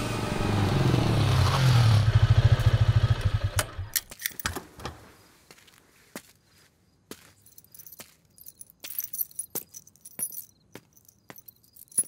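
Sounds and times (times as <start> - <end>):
keys jingling: 4.0 - 4.6, 7.2 - 12.0
footsteps walking: 5.4 - 12.0.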